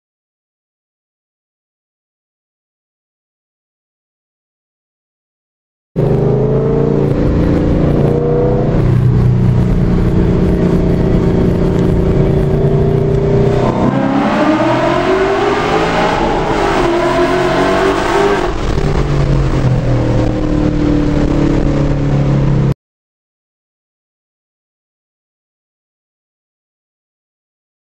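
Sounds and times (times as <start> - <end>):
car engine accelerating: 6.0 - 22.8.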